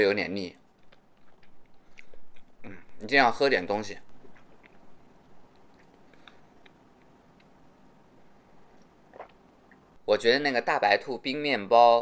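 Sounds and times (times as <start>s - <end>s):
person chewing with wet mouth clicks: 0.8s - 2.6s, 4.1s - 7.6s.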